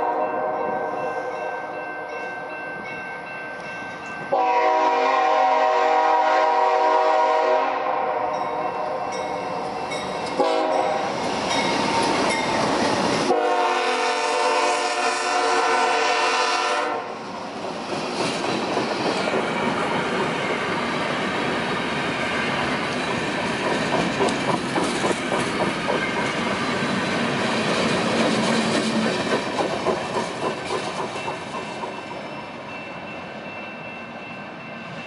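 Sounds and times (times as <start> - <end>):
locomotive air horn: 0.0 - 1.2, 4.3 - 9.1, 10.4 - 11.1, 13.3 - 17.2
train cars clattering past: 0.0 - 35.0.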